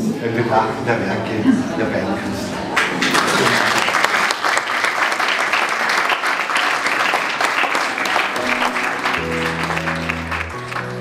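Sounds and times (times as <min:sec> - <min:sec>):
crowd applauding: 0:02.6 - 0:11.0.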